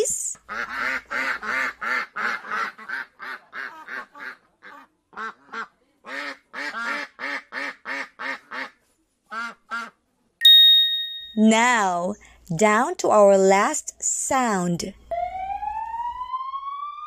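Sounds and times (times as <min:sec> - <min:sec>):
duck quacking: 0:00.5 - 0:09.9.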